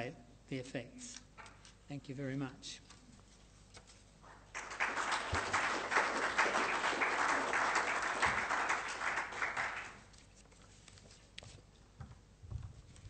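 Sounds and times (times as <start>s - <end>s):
audience applauding: 4.3s - 10.1s.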